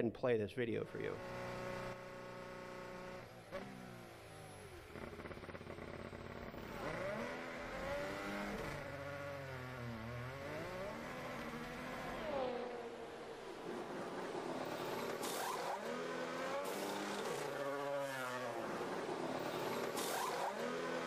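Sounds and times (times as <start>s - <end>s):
racing car engine over loudspeakers: 0.8s - 2.2s, 5.8s - 21.0s.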